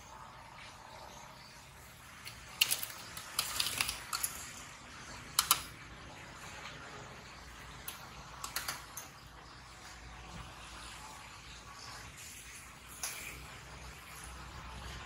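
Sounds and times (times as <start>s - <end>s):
metal tongs clicking on baskets: 2.2s - 4.6s, 5.4s - 5.7s, 7.9s - 9.2s.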